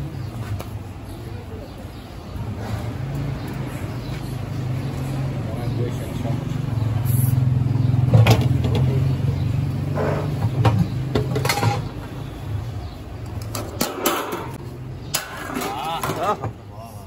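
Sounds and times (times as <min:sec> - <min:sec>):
metal lid clinking and scraping: 0:11.2 - 0:11.9.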